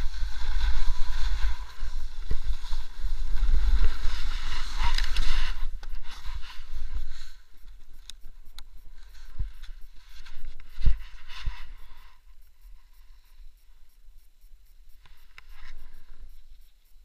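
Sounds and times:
sliding over crusty snow: 0.0s - 7.5s.

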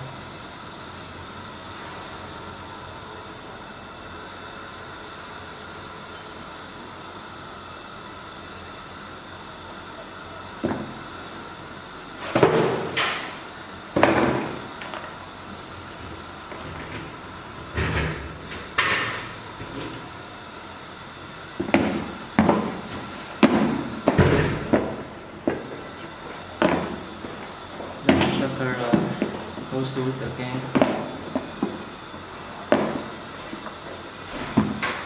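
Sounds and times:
shoes knocking and thudding: 21.6s - 25.8s.

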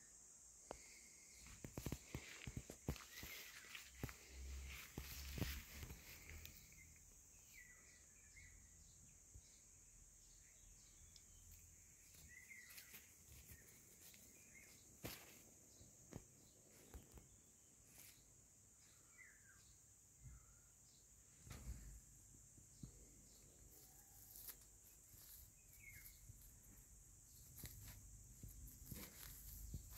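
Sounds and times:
faint bird chirps: 0.0s - 29.9s
steady high hiss: 0.0s - 29.9s
rustles in dry grass: 0.9s - 7.7s, 11.5s - 19.0s, 22.9s - 29.9s.

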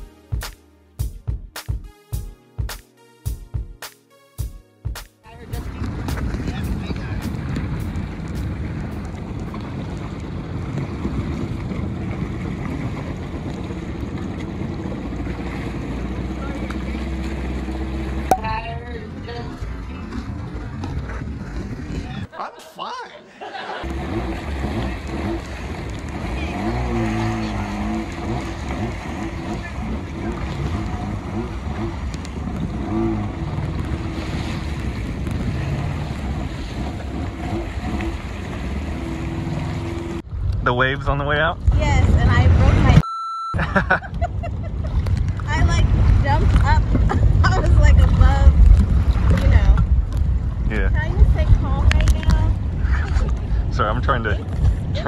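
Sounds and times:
water splashing against hulls: 4.9s - 43.0s, 43.8s - 55.0s
wind buffeting microphone: 5.4s - 22.3s, 23.8s - 43.0s, 43.6s - 55.0s
jet ski engines idling: 12.4s - 21.5s, 23.5s - 34.3s, 35.1s - 40.8s.

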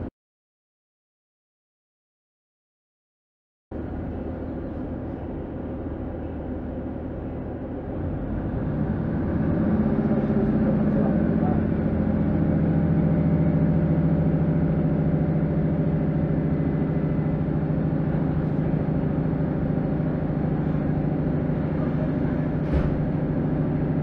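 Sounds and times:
train diesel engine drone: 3.7s - 24.0s
short knock: 22.6s - 23.2s.

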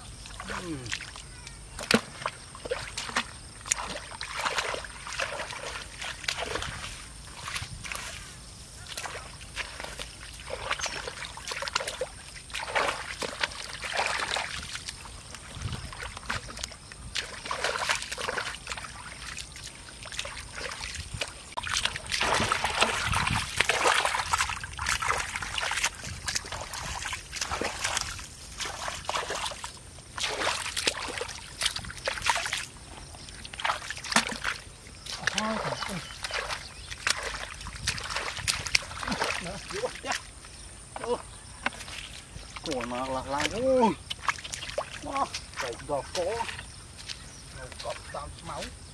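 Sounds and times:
muddy water sloshing and splashing: 0.0s - 48.9s.

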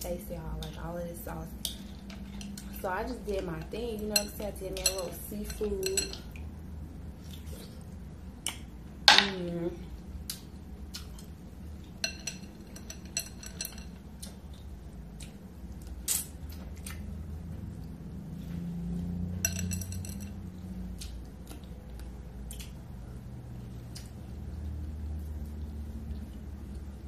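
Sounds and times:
shells clinking against glass bowl: 12.0s - 14.0s, 19.4s - 20.4s.

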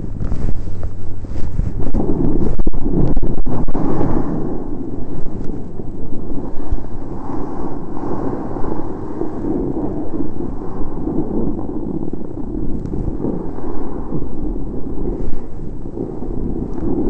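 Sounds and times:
sliding over snow: 0.0s - 17.0s
wind buffeting microphone: 0.0s - 17.0s.

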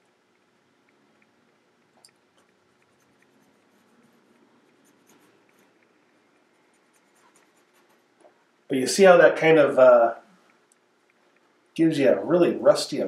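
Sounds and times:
brush scratching on canvas: 2.4s - 5.9s, 6.5s - 8.4s.

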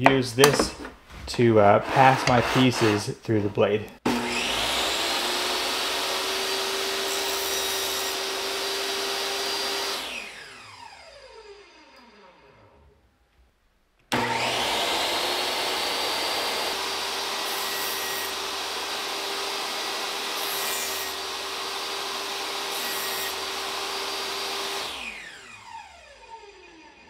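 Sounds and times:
saw blade cutting plywood: 1.7s - 3.2s, 4.1s - 11.2s, 14.1s - 27.0s
table saw motor whining: 4.1s - 12.8s, 14.1s - 27.0s.

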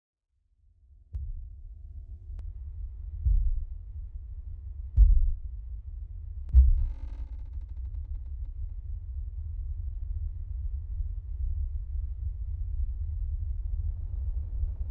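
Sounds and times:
low rumbling drone: 1.2s - 14.9s
deep thuds: 3.3s - 3.7s, 5.0s - 5.4s, 6.5s - 7.9s.

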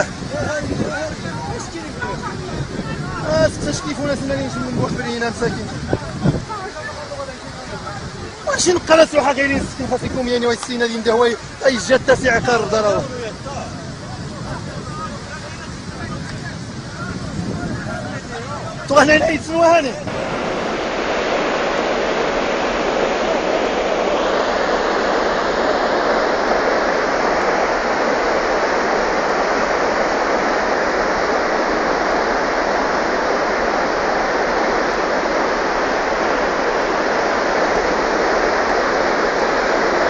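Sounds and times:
floodwater rushing: 18.0s - 40.0s.

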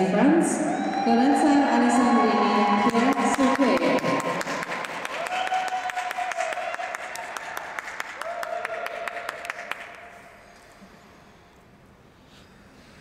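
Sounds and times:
sparse audience applause: 2.3s - 10.1s.

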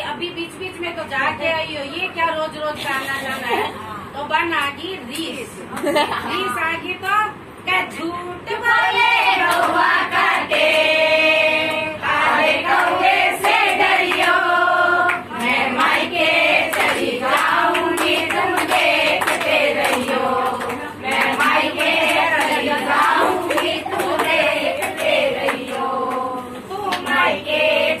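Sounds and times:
women singing in chorus: 8.5s - 28.0s
hand clapping: 9.4s - 9.8s, 12.7s - 14.4s, 16.7s - 26.3s.

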